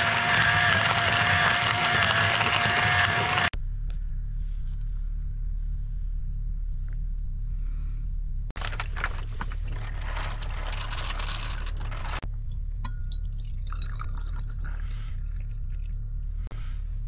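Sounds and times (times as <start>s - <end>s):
low steady rumble: 3.6s - 17.0s
coffee pouring into glass: 13.4s - 14.7s.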